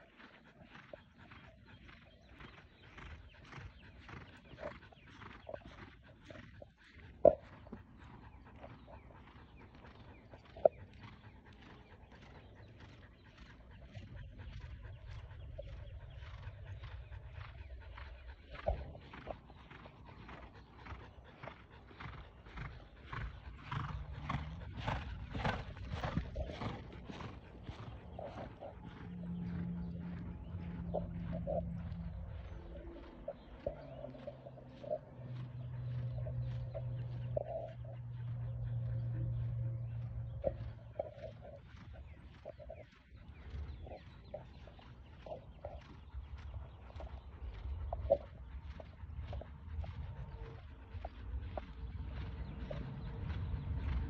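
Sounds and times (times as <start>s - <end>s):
horse hoofbeats on soft dirt: 0.0s - 54.0s.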